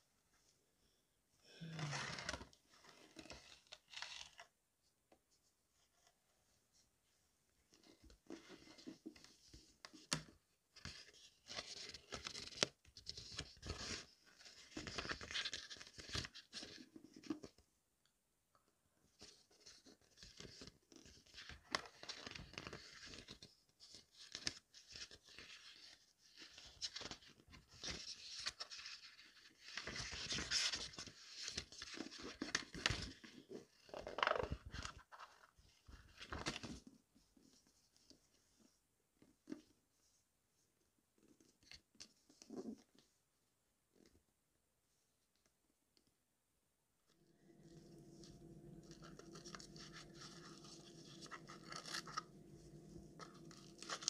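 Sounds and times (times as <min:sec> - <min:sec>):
book pages rustling: 0:02.1 - 0:04.5, 0:07.7 - 0:17.6, 0:19.1 - 0:40.2, 0:47.2 - 0:54.0.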